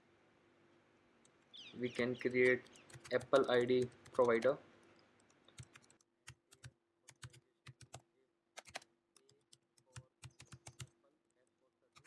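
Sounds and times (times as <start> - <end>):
typing on a keyboard: 2.2 - 4.6, 5.2 - 8.0, 8.6 - 11.0.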